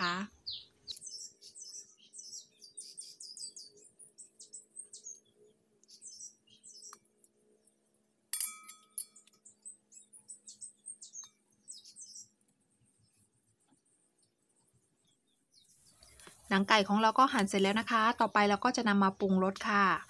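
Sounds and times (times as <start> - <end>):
small birds chirping: 0.0 - 8.1, 8.8 - 20.0
scissors clinking on steel bowl: 8.3 - 9.3.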